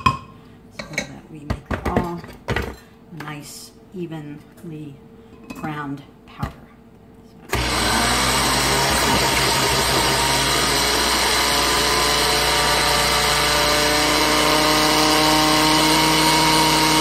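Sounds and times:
blender motor grinding oats: 7.5s - 17.0s.

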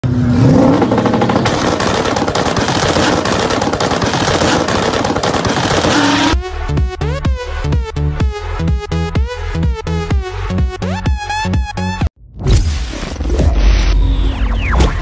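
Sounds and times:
car engine at full throttle: 0.0s - 6.4s
rapid crackling rattle: 1.0s - 6.3s.

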